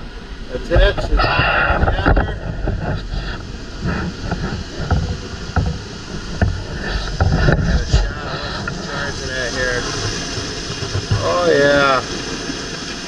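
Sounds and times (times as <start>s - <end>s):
camera handling knocks and rubbing: 3.8s - 8.0s.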